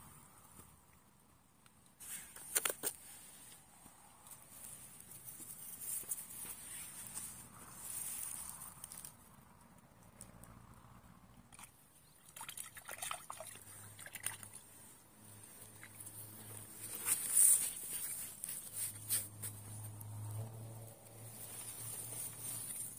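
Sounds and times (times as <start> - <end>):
water splashing and dripping: 11.5 - 14.6.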